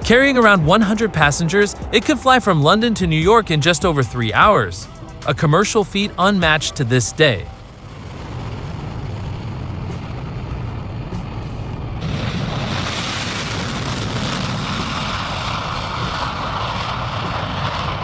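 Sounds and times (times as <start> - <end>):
jet engines roaring: 0.0 - 18.0.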